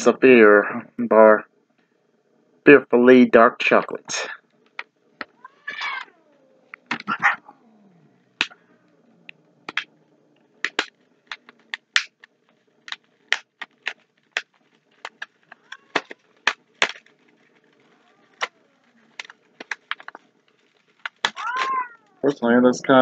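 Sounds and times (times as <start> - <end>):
cat crying: 5.3 - 8.2, 15.4 - 16.4, 17.8 - 19.2, 21.2 - 22.3
wrapper crinkling: 10.6 - 22.2.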